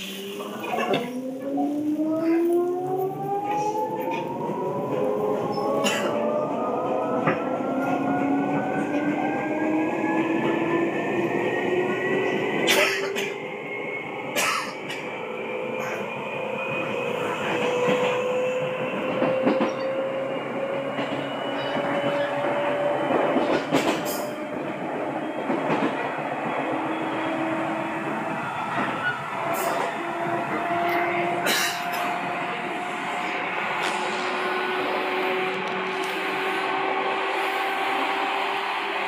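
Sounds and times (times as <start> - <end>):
train wheels rumbling: 0.0 - 39.0
electric train motor whine: 32.1 - 39.0.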